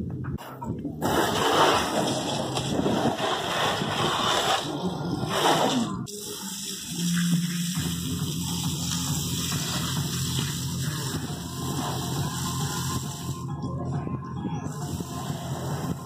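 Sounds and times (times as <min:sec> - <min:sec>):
hose spraying water on car: 0:01.0 - 0:04.7, 0:05.3 - 0:13.4.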